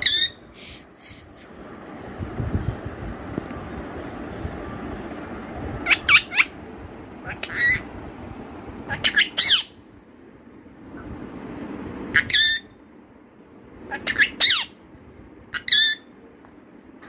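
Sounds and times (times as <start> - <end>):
parakeet short high calls: 7.3 - 7.8.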